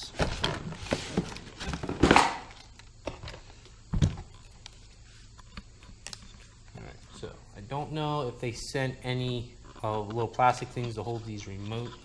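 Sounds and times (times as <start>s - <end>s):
cardboard and plastic rustling: 0.0s - 5.3s.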